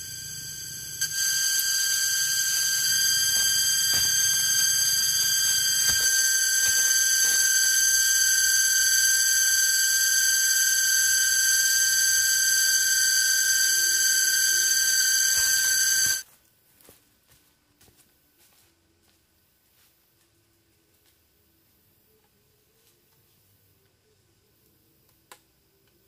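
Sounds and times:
cicadas droning: 0:00.0 - 0:16.2.

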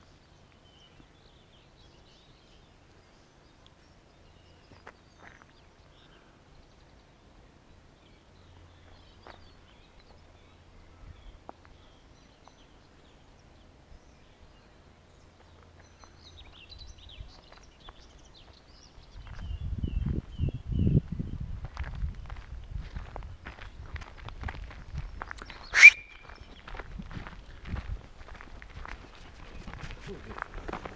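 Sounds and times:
close footsteps: 0:04.6 - 0:05.7, 0:08.8 - 0:10.2, 0:21.1 - 0:30.9
faint bird chirps and calls: 0:25.1 - 0:26.8.

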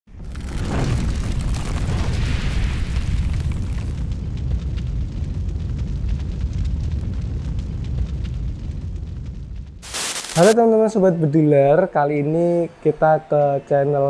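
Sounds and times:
fire-like crackling: 0:00.1 - 0:10.6
deep rumble: 0:00.2 - 0:10.5
hissing wash: 0:09.8 - 0:10.6.

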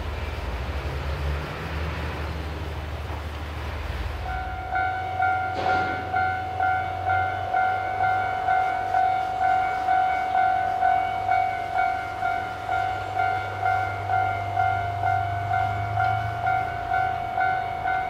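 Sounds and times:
locomotive engine idling hum: 0:02.2 - 0:18.0
level crossing warning bell: 0:04.2 - 0:18.0.

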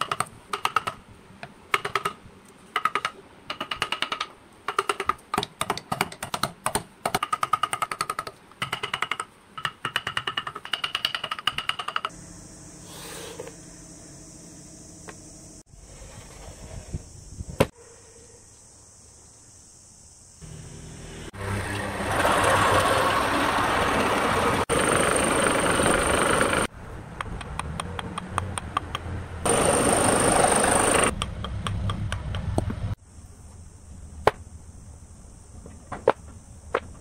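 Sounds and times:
band saw motor starting: 0:20.4 - 0:26.7, 0:29.5 - 0:31.1.

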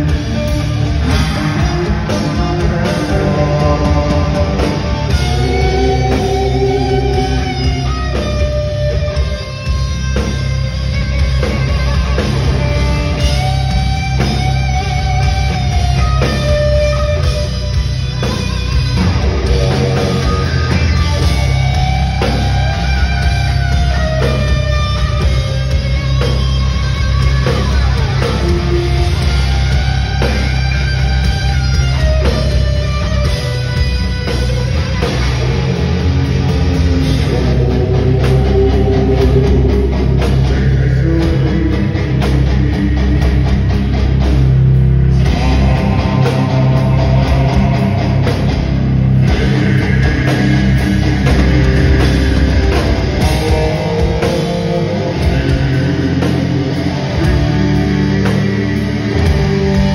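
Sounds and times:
electric guitar solo: 0:00.0 - 0:44.2
heavy metal band playing: 0:00.0 - 0:59.9.

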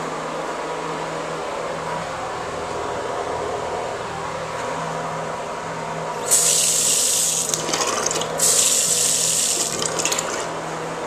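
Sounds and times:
faucet water hissing into basin: 0:06.2 - 0:10.5.

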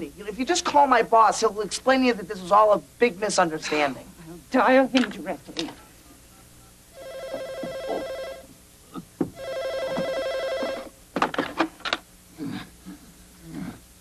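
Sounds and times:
desk telephone ringing: 0:07.0 - 0:08.6, 0:09.3 - 0:11.0.

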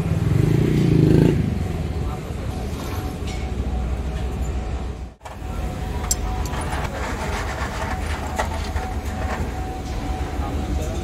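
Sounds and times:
low mechanical rumble: 0:03.3 - 0:11.0.

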